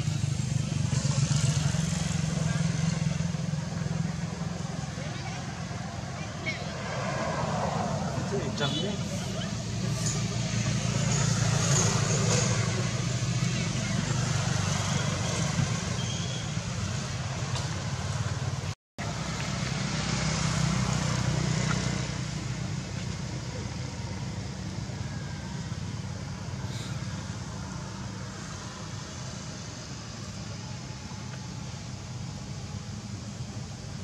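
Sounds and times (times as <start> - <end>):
road traffic rumble: 0.0 - 34.0.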